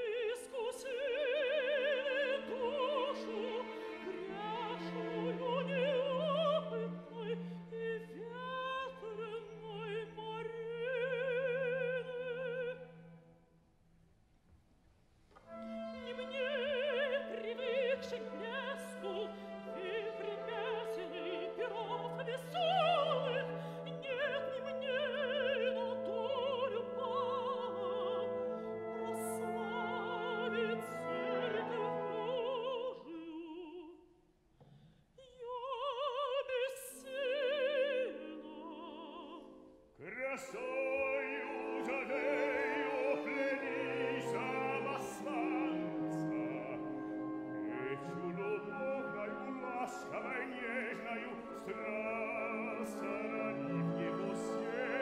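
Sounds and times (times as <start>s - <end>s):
woman singing opera: 0.0s - 13.1s, 15.5s - 34.0s, 35.2s - 55.0s
man singing opera: 40.0s - 55.0s.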